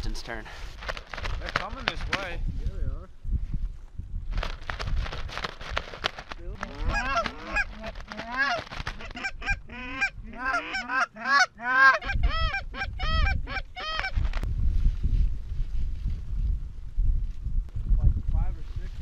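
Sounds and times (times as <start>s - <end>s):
wind rumble on microphone: 0.0s - 10.7s, 11.9s - 19.0s
goose honks: 6.8s - 14.1s.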